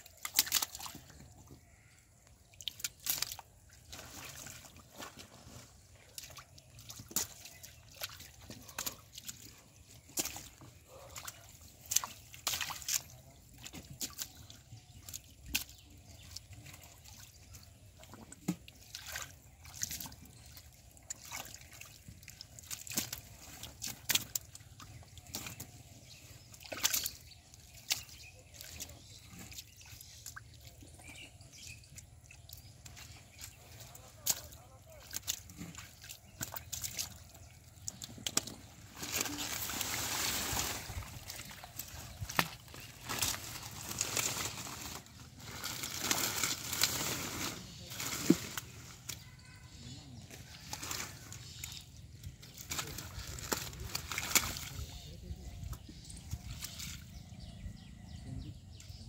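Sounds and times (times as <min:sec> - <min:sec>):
fish thrashing in mud: 0:00.0 - 0:01.8, 0:21.1 - 0:25.9, 0:32.8 - 0:49.3, 0:50.3 - 0:54.9
splashing in muddy water: 0:00.0 - 0:59.0.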